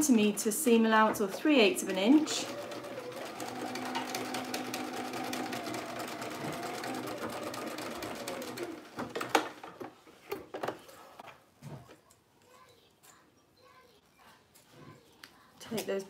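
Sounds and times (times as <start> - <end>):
sewing machine running: 1.0 - 9.6.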